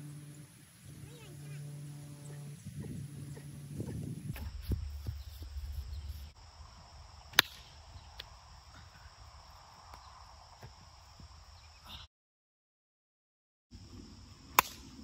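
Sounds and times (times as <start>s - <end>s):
wind rumbling on microphone: 0.0s - 11.8s
insects chirring: 0.0s - 12.0s, 13.8s - 15.0s
sharp crack: 7.3s - 8.4s, 14.5s - 15.0s.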